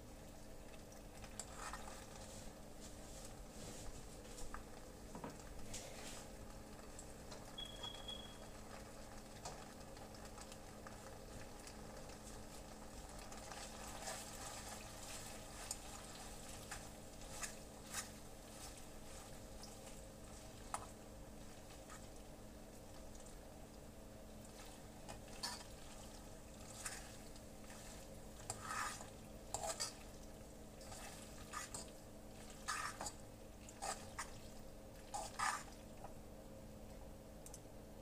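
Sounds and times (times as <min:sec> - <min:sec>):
steady low hum: 0:00.0 - 0:38.0
brief high beep: 0:07.6 - 0:08.4.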